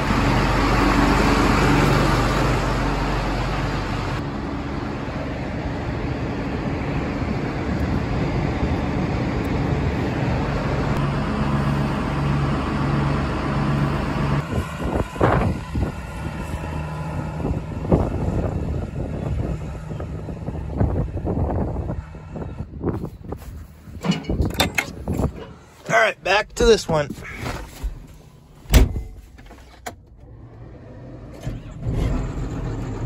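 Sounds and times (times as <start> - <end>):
tractor engine running: 0.0 - 33.0
wind buffeting microphone: 14.4 - 25.6.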